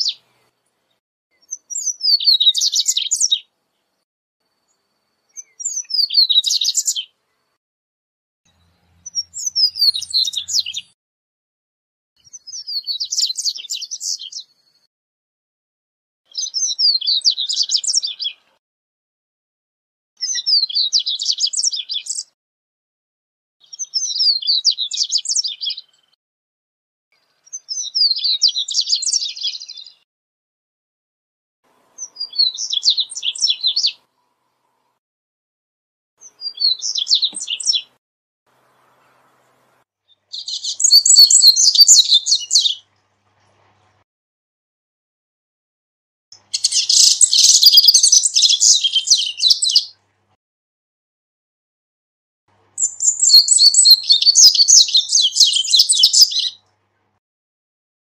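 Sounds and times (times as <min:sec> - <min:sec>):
bird singing high phrases: 0:00.0 - 0:00.6, 0:01.3 - 0:07.6, 0:08.5 - 0:11.0, 0:12.2 - 0:14.9, 0:16.3 - 0:18.6, 0:20.2 - 0:22.4, 0:23.6 - 0:26.2, 0:27.1 - 0:30.0, 0:32.0 - 0:34.1, 0:36.2 - 0:38.0, 0:38.6 - 0:42.9, 0:46.3 - 0:50.0, 0:52.8 - 0:56.7.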